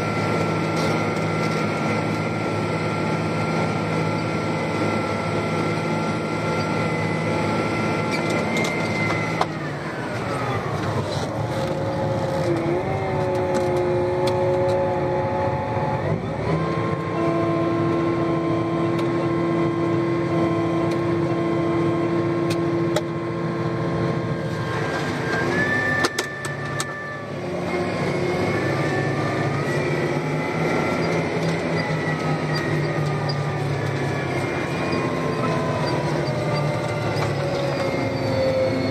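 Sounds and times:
steady whine: 0:00.0 - 0:38.9
tractor diesel engine under load: 0:00.0 - 0:38.9.

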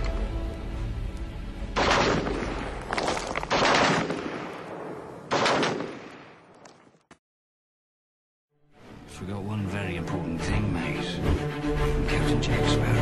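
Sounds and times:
music: 0:00.0 - 0:02.4, 0:08.5 - 0:13.0
gunfire blasts: 0:01.8 - 0:06.5.

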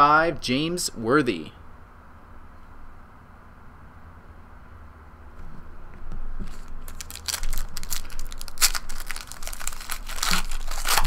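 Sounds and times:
foil wrapper crinkling and tearing: 0:06.4 - 0:11.0.

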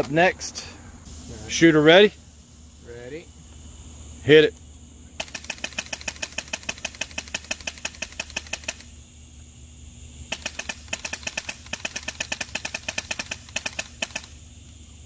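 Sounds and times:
airsoft rifle rapid snaps: 0:05.2 - 0:08.9, 0:10.3 - 0:14.4.

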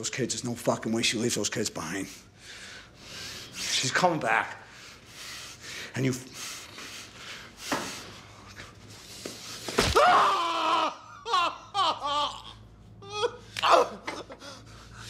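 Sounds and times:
man screaming in pain: 0:09.9 - 0:14.2
man sobbing cries: 0:10.0 - 0:14.7.

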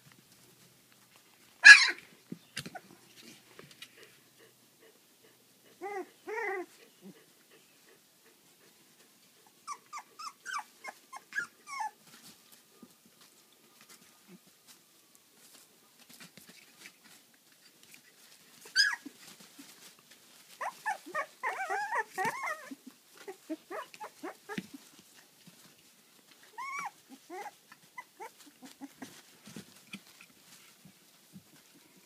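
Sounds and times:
puppies whining and squealing: 0:01.6 - 0:02.0, 0:05.7 - 0:07.6, 0:09.6 - 0:12.1, 0:18.6 - 0:19.8, 0:20.5 - 0:24.9, 0:26.5 - 0:29.2
puppy yelp: 0:01.6 - 0:02.0, 0:05.8 - 0:06.7, 0:09.6 - 0:12.0, 0:18.6 - 0:19.8, 0:20.6 - 0:24.9, 0:26.5 - 0:29.2.

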